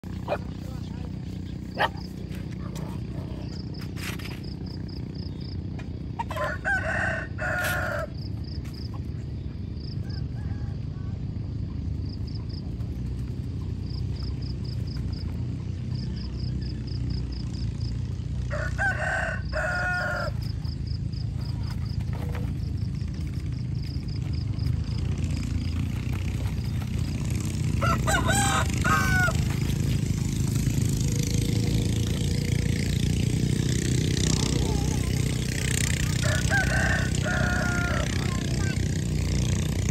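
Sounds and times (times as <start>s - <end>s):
low outdoor rumble: 0.0s - 39.9s
rooster crowing: 6.2s - 8.3s, 10.0s - 11.2s, 18.4s - 20.7s, 27.7s - 29.7s, 35.8s - 38.8s.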